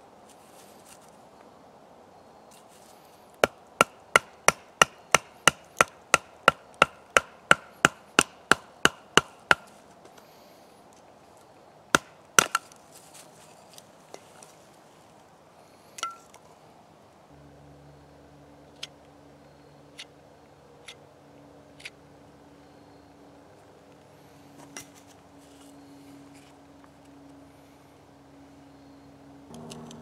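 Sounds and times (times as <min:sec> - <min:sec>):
wood being chopped: 0:03.4 - 0:09.8, 0:11.9 - 0:12.8.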